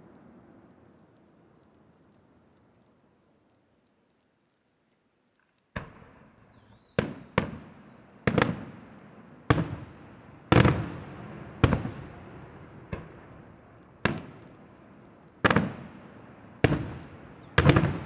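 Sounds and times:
firework shells booming: 5.7 - 18.0.

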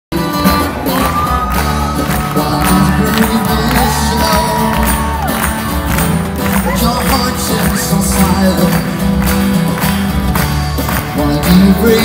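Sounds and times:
crowd noise: 0.1 - 12.0
live pop band: 0.1 - 12.0
singer holding long notes: 0.6 - 5.9
drum beat: 0.7 - 12.0.

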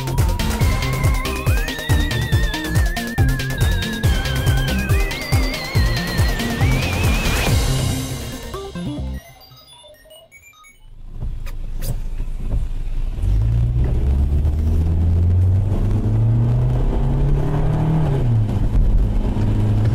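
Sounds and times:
car engine and road noise: 0.0 - 8.6, 10.8 - 19.9.

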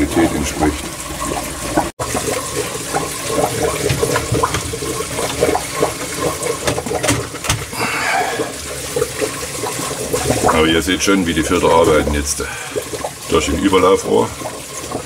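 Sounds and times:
water gurgling and splashing: 0.0 - 15.0.

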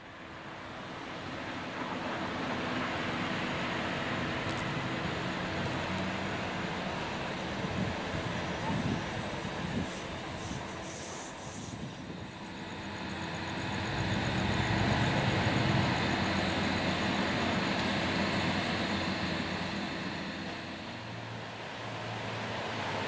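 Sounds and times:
passing vehicle rumble: 11.7 - 23.0.

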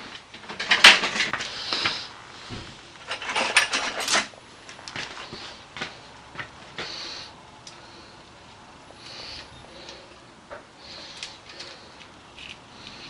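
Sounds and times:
metal tools clinking: 3.1 - 4.3.

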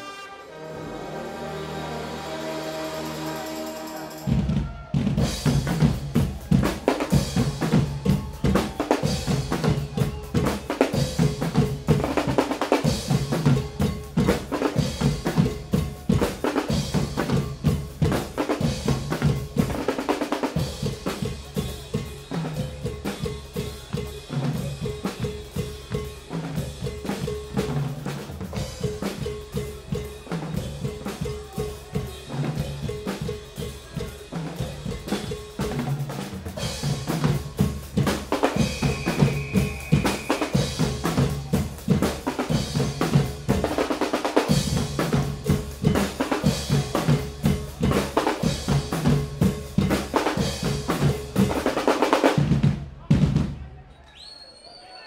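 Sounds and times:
drum kit: 0.0 - 53.7
snare drums: 2.0 - 53.7
large bass drums: 4.3 - 20.0.

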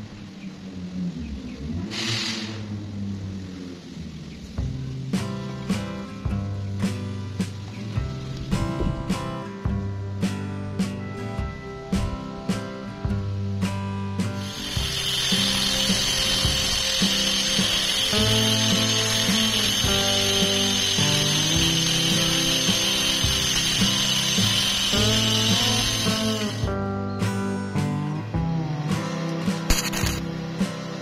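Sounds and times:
grinder whining on steel bar: 14.4 - 26.7.

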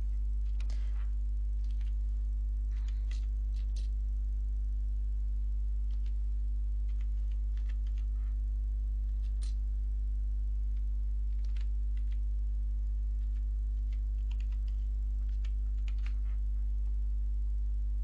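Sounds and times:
steady low hum: 0.0 - 18.0
keyboard typing: 0.4 - 1.0, 1.6 - 2.0, 2.7 - 3.9, 5.9 - 6.2, 6.8 - 8.4, 10.7 - 12.3, 13.2 - 16.4.

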